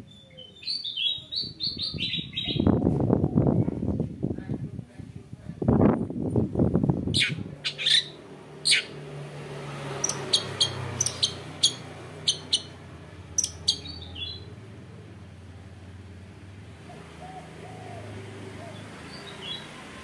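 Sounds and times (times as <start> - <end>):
shrike harsh calls: 7.2 - 9.0, 10.0 - 12.8.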